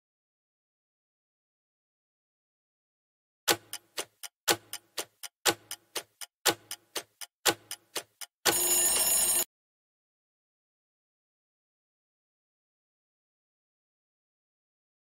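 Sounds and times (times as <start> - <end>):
clock ticking: 3.5 - 9.4
alarm ringing: 8.5 - 9.5.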